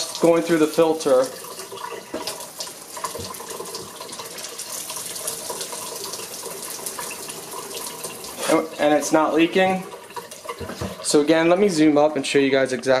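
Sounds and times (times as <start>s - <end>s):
tap water splashing into sink: 0.0s - 11.5s.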